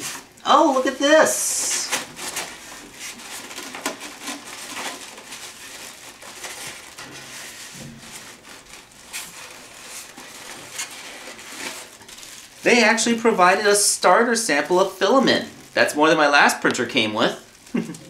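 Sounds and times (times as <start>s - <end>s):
foam blocks rubbing and scraping: 0.0s - 13.0s.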